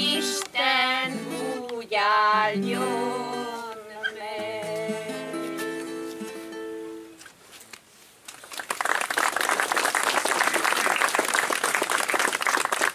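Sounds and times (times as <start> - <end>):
person singing: 0.0 - 6.4
acoustic guitar chord: 4.4 - 7.2
audience applause: 8.4 - 12.9.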